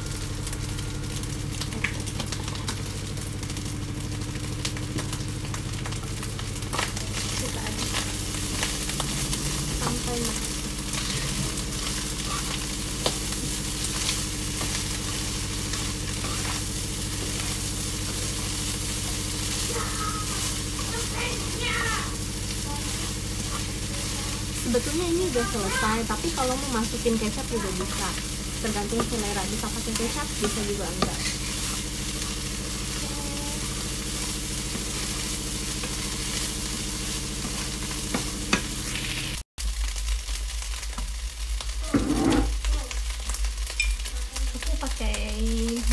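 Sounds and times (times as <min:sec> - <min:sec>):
low hum: 0:00.0 - 0:39.3
rice sizzling in a frying pan: 0:00.0 - 0:45.9
spatula scraping a pan: 0:10.9 - 0:36.6, 0:41.9 - 0:42.6.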